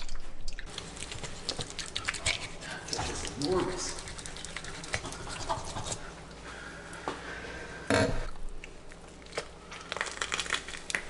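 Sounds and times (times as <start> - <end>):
small cracks and crunches: 8.6 - 11.0.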